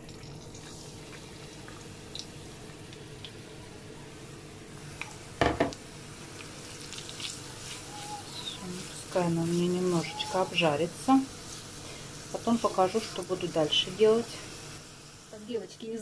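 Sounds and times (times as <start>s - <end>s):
food sizzling in a frying pan: 0.0s - 16.0s
kitchenware knocking on a pan: 5.4s - 5.8s.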